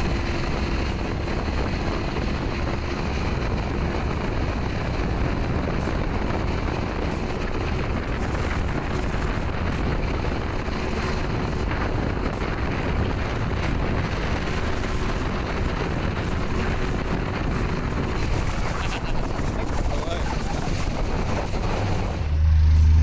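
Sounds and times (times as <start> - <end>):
wind buffeting microphone: 0.0 - 22.3
motorboat engine drone: 0.0 - 23.0
rushing water: 16.3 - 22.2.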